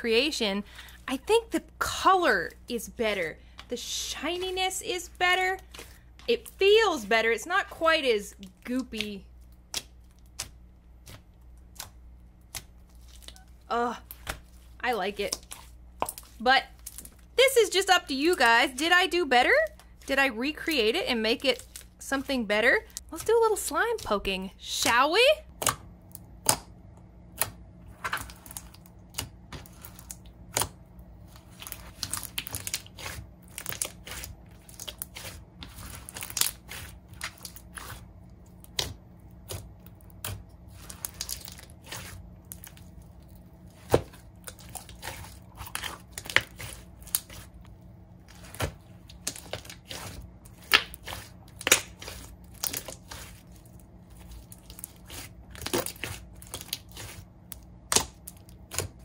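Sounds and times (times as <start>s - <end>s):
slime popping and crackling: 31.4s - 47.6s, 48.3s - 59.0s.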